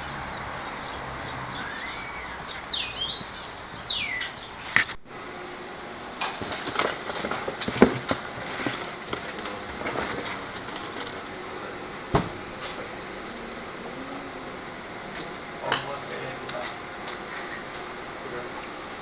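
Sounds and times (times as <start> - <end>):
objects clicking and knocking: 6.2 - 11.2
hands rummaging through box: 6.4 - 11.2.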